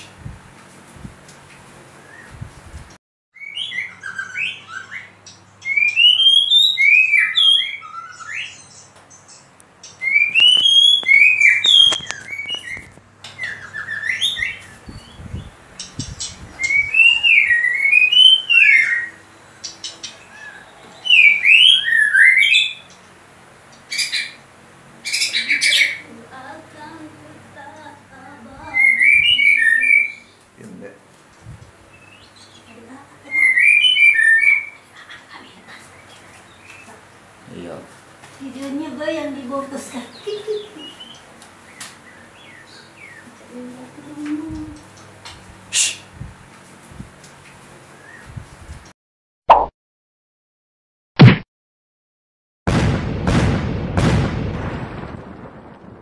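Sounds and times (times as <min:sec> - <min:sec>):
bird singing whistles: 0:03.4 - 0:08.8, 0:09.9 - 0:19.2, 0:20.5 - 0:22.8, 0:28.8 - 0:30.3, 0:33.3 - 0:34.7, 0:45.7 - 0:46.1
harsh bird notes: 0:09.8 - 0:23.2, 0:45.7 - 0:46.2.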